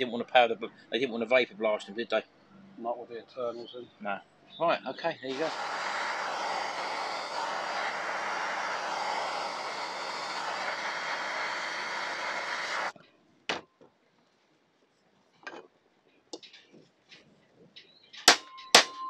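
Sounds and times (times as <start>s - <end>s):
gas blowtorch hissing: 5.3s - 13.0s.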